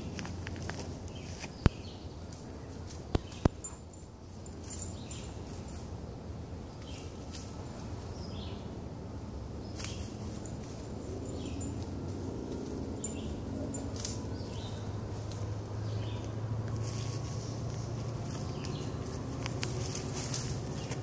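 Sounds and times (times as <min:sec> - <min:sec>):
bird chirps: 0:13.0 - 0:15.0.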